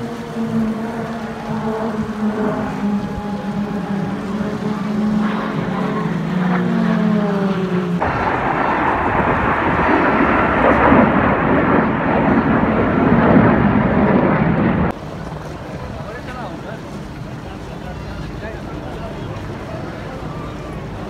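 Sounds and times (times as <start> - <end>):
jet whine dropping in pitch: 0.0 - 14.9
loud jet roar: 0.0 - 15.0.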